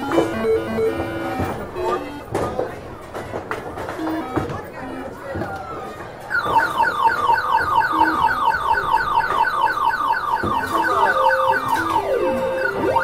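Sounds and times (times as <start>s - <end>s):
arcade electronic jingle: 6.4s - 13.0s.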